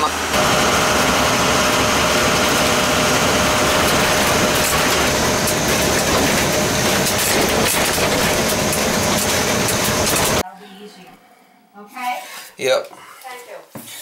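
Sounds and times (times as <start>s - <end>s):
vehicle engine drone: 0.0s - 10.4s.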